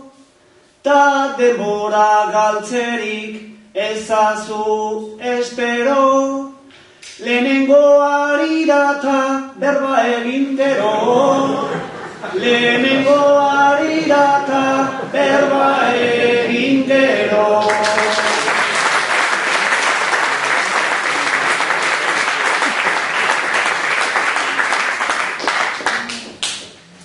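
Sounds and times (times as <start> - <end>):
man singing unaccompanied: 0.8 - 18.7
audience applause: 17.6 - 26.7.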